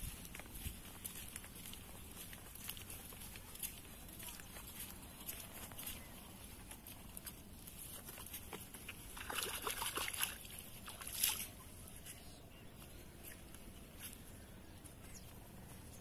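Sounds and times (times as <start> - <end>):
water splashing and sloshing: 1.0 - 12.0.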